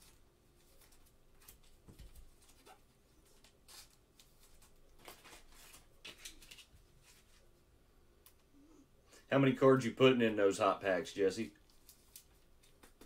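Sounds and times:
card and plastic sleeve rustling: 0:00.0 - 0:07.5, 0:11.6 - 0:13.0.

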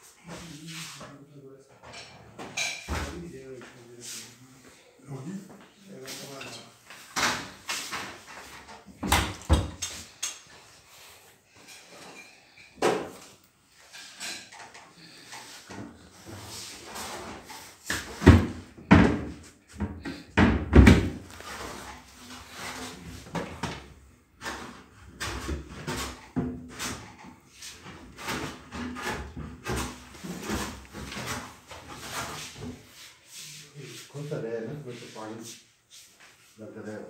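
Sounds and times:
cabinet doors opening and shutting: 0:07.1 - 0:10.2, 0:15.5 - 0:32.8.

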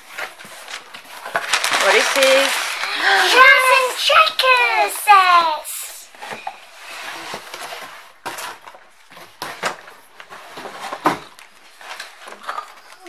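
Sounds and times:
packaging rustling: 0:00.0 - 0:05.4.

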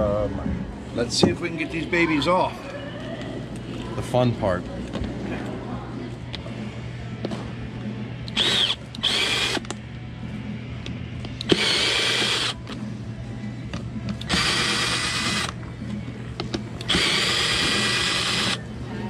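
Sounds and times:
cordless drill unscrewing screws: 0:14.2 - 0:15.5, 0:16.8 - 0:18.6.

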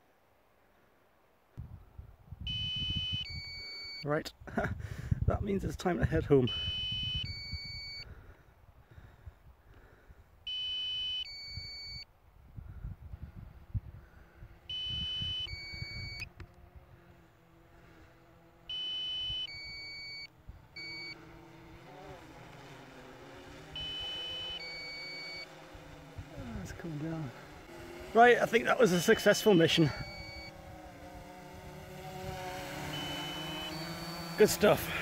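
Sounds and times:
wind on microphone: 0:01.6 - 0:03.5, 0:12.3 - 0:16.9
electronic two-tone alarm: 0:02.5 - 0:04.0, 0:06.5 - 0:08.0, 0:10.5 - 0:12.0, 0:14.7 - 0:16.3, 0:18.7 - 0:21.2, 0:23.8 - 0:25.5, 0:29.0 - 0:30.6, 0:32.9 - 0:34.6
faint drone hum: 0:13.5 - 0:35.0.

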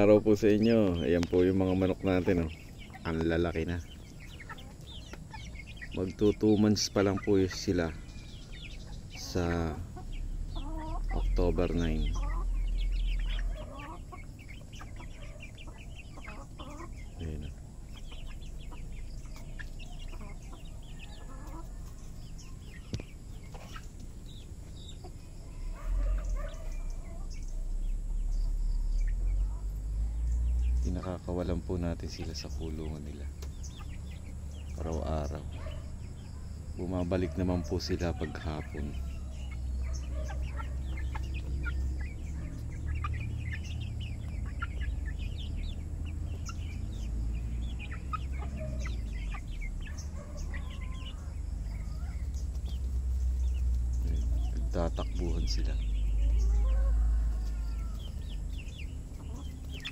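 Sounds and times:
steady low rumble: 0:00.0 - 0:36.9, 0:38.6 - 0:56.6
hens clucking: 0:00.0 - 0:59.9
low rumble: 0:09.8 - 0:15.1.

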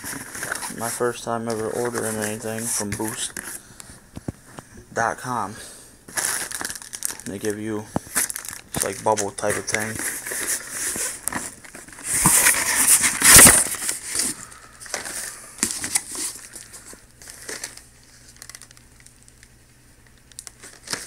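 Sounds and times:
plastic packaging clicks: 0:06.1 - 0:10.0, 0:14.8 - 0:21.0
plastic bubble packaging crinkling: 0:06.1 - 0:21.0.

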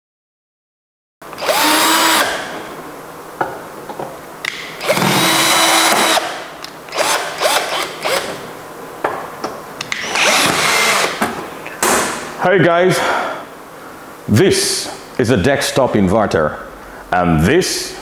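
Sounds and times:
cordless drill removing screws: 0:04.8 - 0:08.4, 0:09.9 - 0:11.3.

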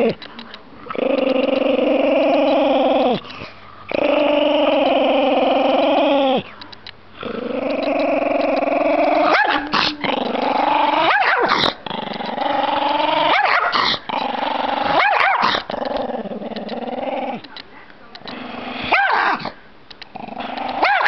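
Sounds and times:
dog growling: 0:00.0 - 0:06.5, 0:07.1 - 0:17.5, 0:18.2 - 0:21.0
dog barking or snarling: 0:09.2 - 0:10.0, 0:11.0 - 0:11.8, 0:13.3 - 0:14.1, 0:14.8 - 0:15.7, 0:18.8 - 0:19.6, 0:20.8 - 0:21.0.

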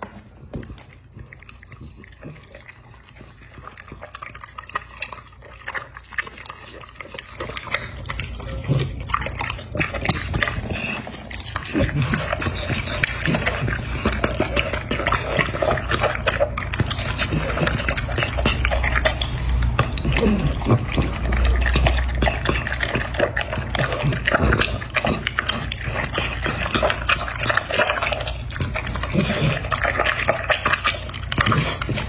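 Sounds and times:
dog chewing and smacking: 0:00.0 - 0:32.0.

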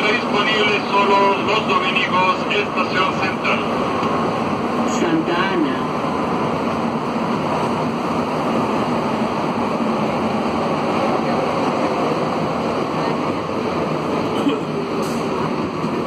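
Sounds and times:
train ride rushing noise: 0:00.0 - 0:16.0.

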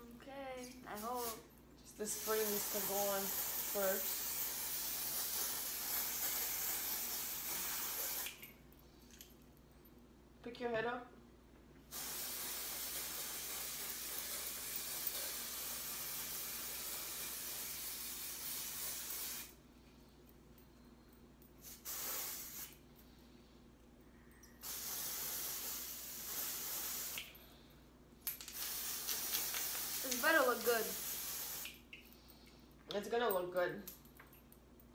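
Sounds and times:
aerosol can spraying: 0:00.9 - 0:01.4, 0:02.0 - 0:08.4, 0:11.9 - 0:19.6, 0:21.6 - 0:22.8, 0:24.6 - 0:27.3, 0:28.5 - 0:31.8.

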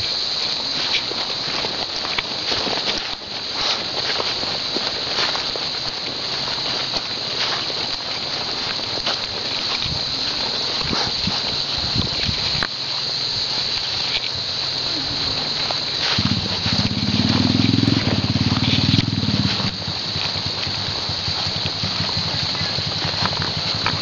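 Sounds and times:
small engine pulsing: 0:05.1 - 0:24.0.

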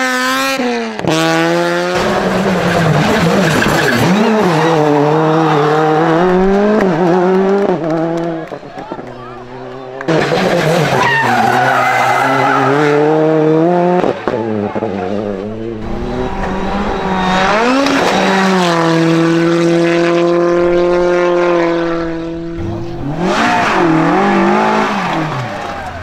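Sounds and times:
rally car engine revving: 0:00.0 - 0:26.0.

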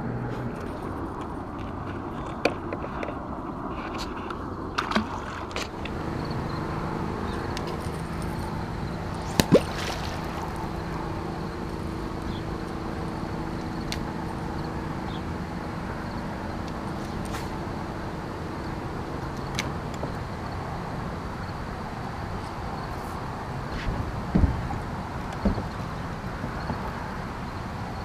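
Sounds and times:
water noise: 0:00.0 - 0:28.0
electric trolling motor hum: 0:05.8 - 0:22.8
sharp knocks: 0:23.8 - 0:27.1.

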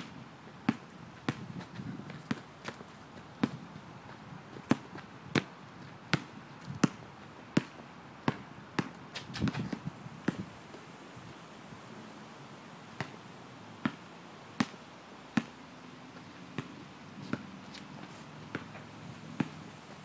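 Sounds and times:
basketball bouncing on asphalt: 0:00.0 - 0:10.5, 0:13.0 - 0:13.2, 0:13.8 - 0:14.0, 0:14.6 - 0:15.6, 0:16.2 - 0:19.7.

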